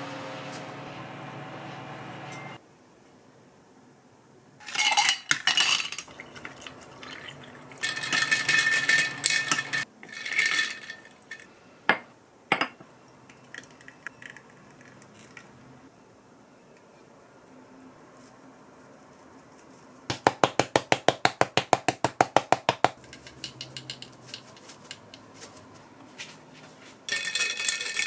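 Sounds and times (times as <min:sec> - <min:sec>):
ice cubes clinking in glass: 0:04.6 - 0:11.4, 0:27.1 - 0:28.0.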